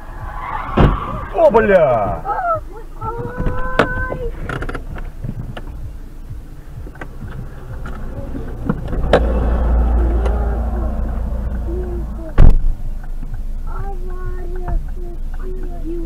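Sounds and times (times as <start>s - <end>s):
low rumble inside car: 0.0s - 16.0s
loud thump: 0.5s - 1.4s, 12.3s - 12.8s.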